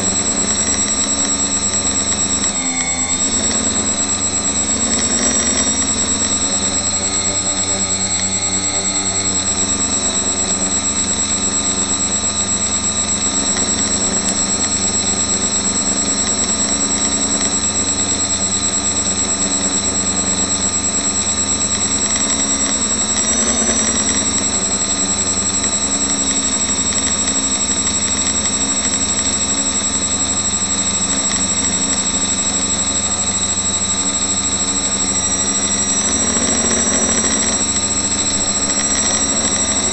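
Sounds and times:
drone motors whining: 0:00.0 - 0:39.9.

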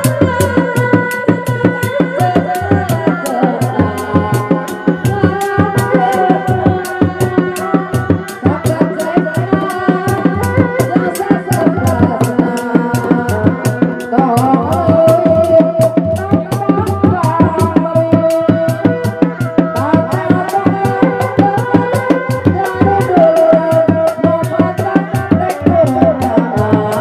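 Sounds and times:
fast drum beat: 0:00.0 - 0:27.0.

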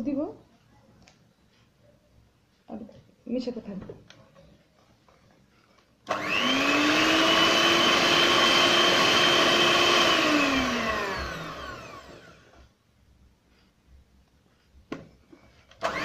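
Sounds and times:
electric hand mixer whining: 0:06.1 - 0:12.6, 0:15.8 - 0:16.0
mixer motor spinning down: 0:06.1 - 0:12.6, 0:15.8 - 0:16.0.

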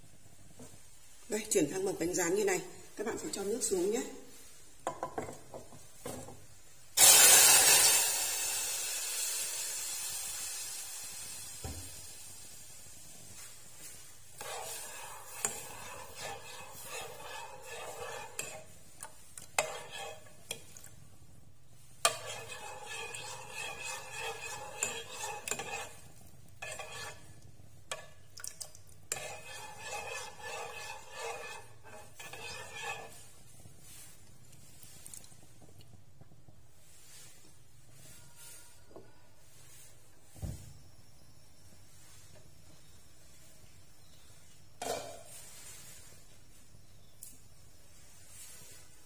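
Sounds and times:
metal spoon scraping a pot: 0:07.0 - 0:09.5, 0:13.4 - 0:21.0, 0:21.9 - 0:28.4, 0:29.0 - 0:34.4
hot caramel hissing: 0:07.0 - 0:27.8, 0:29.1 - 0:34.2.

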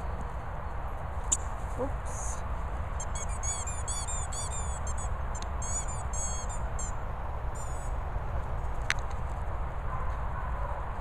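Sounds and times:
small bird chirping: 0:03.0 - 0:07.0, 0:07.6 - 0:07.9.

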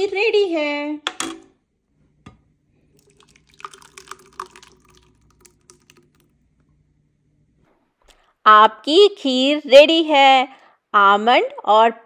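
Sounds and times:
thick liquid pouring and plopping: 0:02.9 - 0:06.6.

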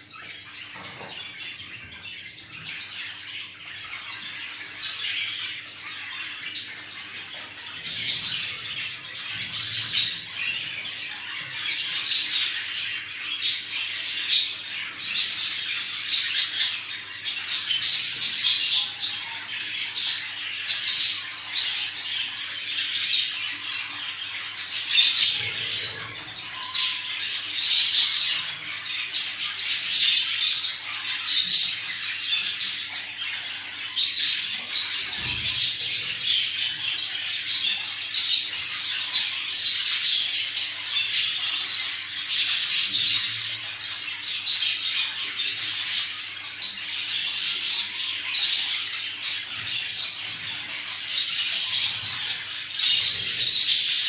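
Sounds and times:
budgerigars chattering: 0:00.0 - 0:54.0.

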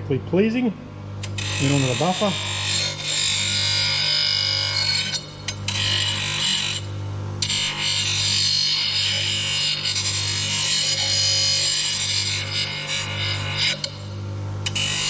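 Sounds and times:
bench grinder motor hum: 0:01.2 - 0:15.0
metal rubbing on buffing wheel: 0:01.4 - 0:06.8.

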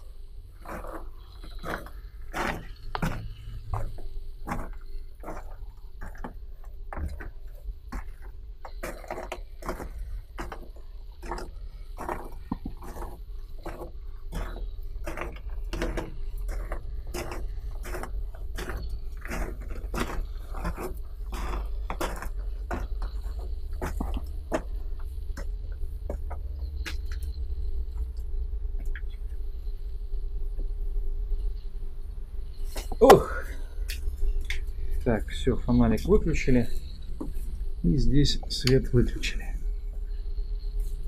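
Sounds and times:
handling noise: 0:00.0 - 0:28.1
steady low rumble: 0:00.0 - 0:41.0
footsteps on a gritty floor: 0:00.6 - 0:28.1.

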